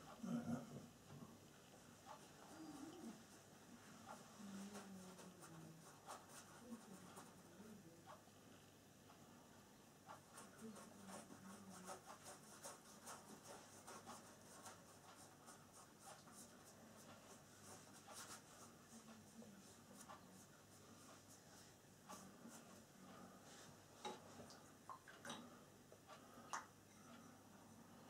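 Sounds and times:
paintbrush scratching on canvas: 0:02.0 - 0:08.2, 0:10.1 - 0:24.4.

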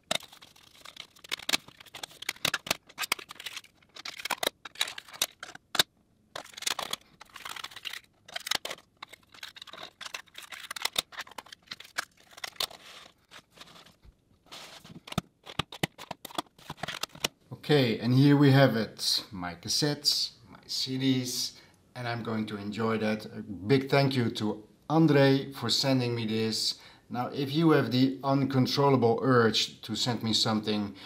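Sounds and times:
plastic cases clicking and tapping: 0:00.0 - 0:12.8, 0:14.9 - 0:17.4
paper inserts rustling: 0:00.0 - 0:17.4.

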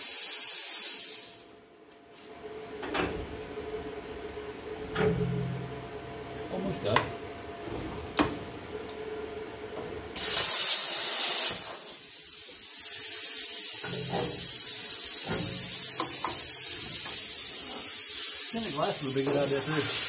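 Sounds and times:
plasma cutter hissing: 0:00.0 - 0:01.5, 0:10.2 - 0:20.0.

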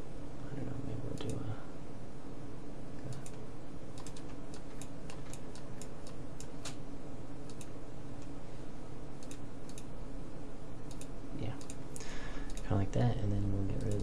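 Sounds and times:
steady low hum: 0:00.0 - 0:14.0
mouse and keyboard clicks: 0:04.0 - 0:06.8.

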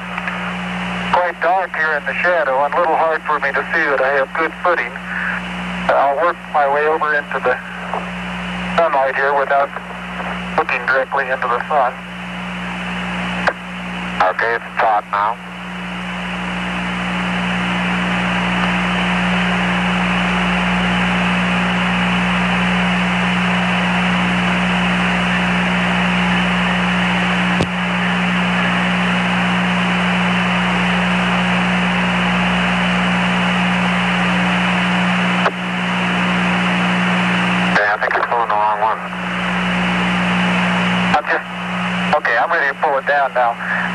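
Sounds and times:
low steady hum: 0:00.0 - 0:43.9
radio static hiss: 0:00.0 - 0:43.9.

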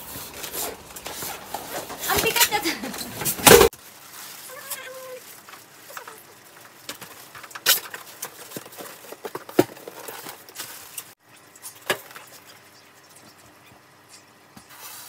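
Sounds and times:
plastic wrapping crinkling: 0:03.6 - 0:11.2.

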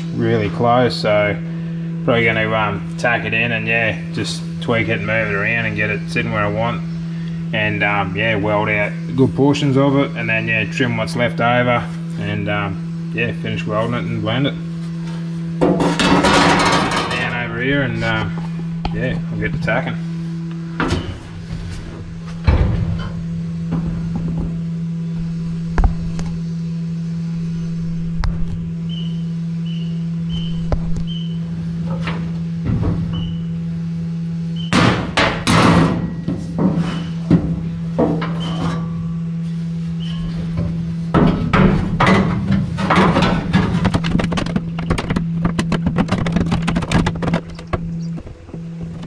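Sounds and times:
steady low hum: 0:00.0 - 0:49.0
metal knocks and clanks: 0:15.6 - 0:17.5, 0:22.3 - 0:24.7, 0:34.7 - 0:39.1, 0:40.5 - 0:49.0.

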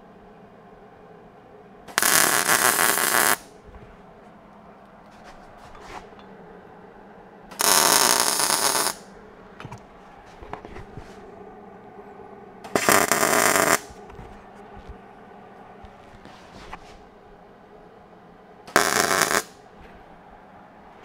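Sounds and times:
crackling welding arc: 0:01.9 - 0:03.5, 0:07.5 - 0:09.1, 0:12.6 - 0:14.0, 0:18.7 - 0:19.6.

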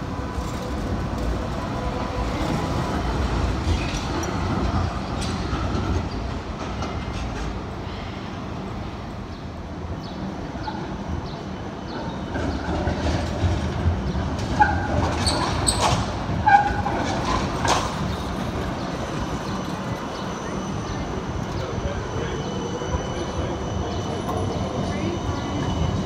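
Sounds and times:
tram wheel squeals: 0:00.0 - 0:09.2, 0:10.1 - 0:26.0
tram motors and wheels rumbling: 0:00.0 - 0:26.0.

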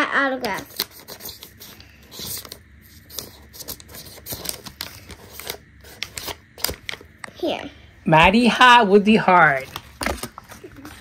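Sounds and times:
marker pen scratching on paper: 0:00.4 - 0:06.4
paper rustling: 0:00.4 - 0:07.0, 0:09.6 - 0:11.0.

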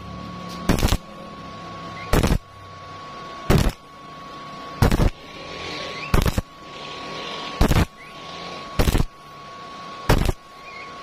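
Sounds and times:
welding arc sizzling: 0:00.0 - 0:09.4, 0:10.0 - 0:11.0.

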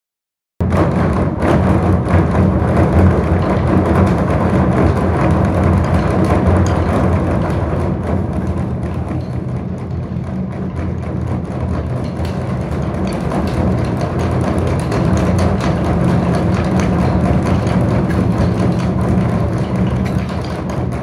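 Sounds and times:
large drums beaten in fast roll: 0:00.6 - 0:21.0.

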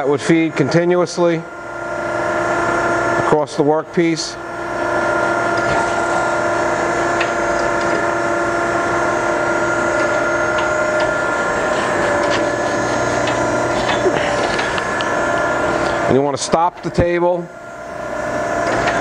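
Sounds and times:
surface grinder humming: 0:04.3 - 0:16.4.

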